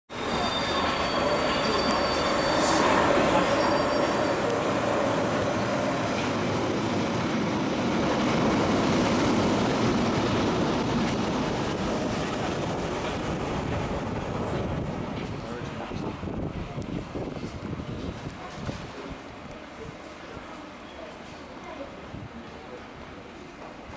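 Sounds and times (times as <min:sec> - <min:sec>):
high-pitched wheel squeals: 0:00.1 - 0:06.0
train wheels rumbling on rail: 0:00.1 - 0:23.9.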